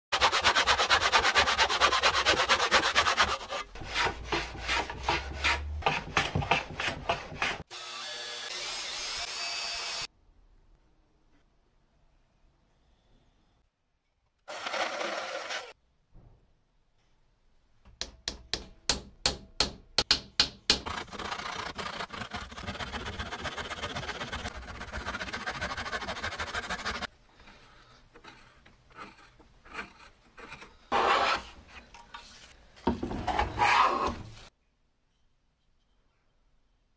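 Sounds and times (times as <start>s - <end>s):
hand saw sawing: 0.1s - 7.6s, 20.8s - 27.1s, 28.1s - 31.9s, 33.3s - 34.2s
hand plane shaving strokes: 0.2s - 7.6s, 20.9s - 32.5s, 33.3s - 34.4s.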